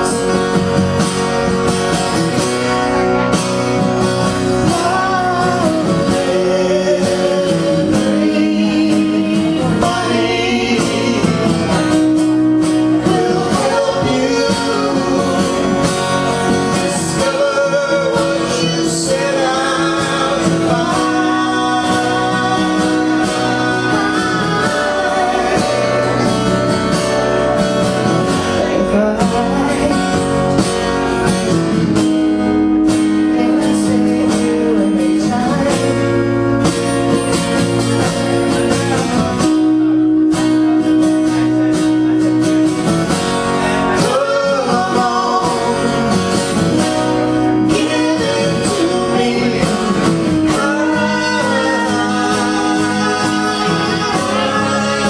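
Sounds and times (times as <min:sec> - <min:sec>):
acoustic guitars playing: 0:00.0 - 0:55.0
man singing harmony: 0:04.3 - 0:30.4, 0:33.2 - 0:36.6, 0:43.5 - 0:55.0
woman singing lead: 0:12.9 - 0:26.4, 0:43.9 - 0:55.0.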